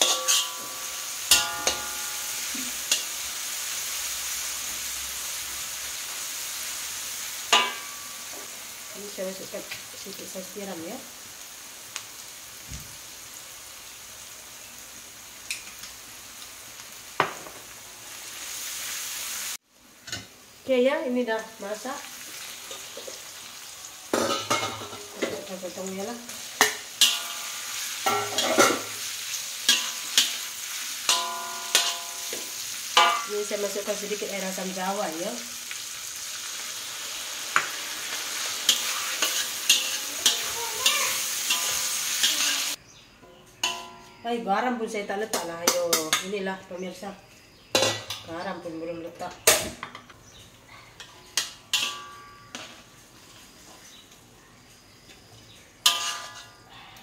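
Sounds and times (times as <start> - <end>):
metal spatula stirring a pan: 0.0 - 3.5, 7.5 - 8.5, 24.1 - 34.2, 37.4 - 44.2, 51.0 - 53.9, 55.8 - 56.6
food sizzling in a wok: 0.0 - 57.0.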